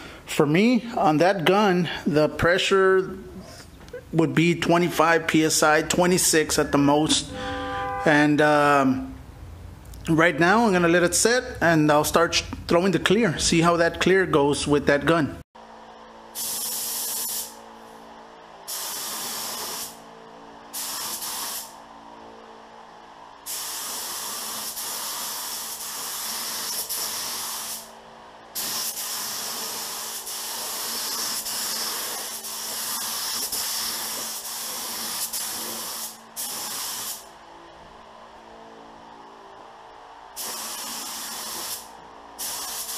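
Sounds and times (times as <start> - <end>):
steady low hum: 0.0 - 13.4, 15.6 - 42.9
spray gun hissing: 16.3 - 17.6, 18.7 - 20.0, 20.8 - 21.8, 23.4 - 27.9, 28.6 - 37.3, 40.4 - 42.9.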